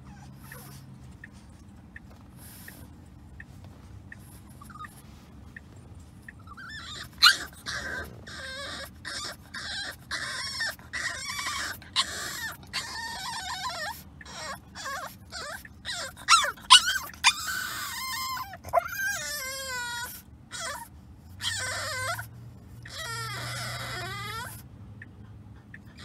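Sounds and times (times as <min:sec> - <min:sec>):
puppy whining and whimpering: 0:00.0 - 0:01.6, 0:04.1 - 0:05.2, 0:06.3 - 0:24.7, 0:25.6 - 0:26.0
car road rumble: 0:00.0 - 0:13.2.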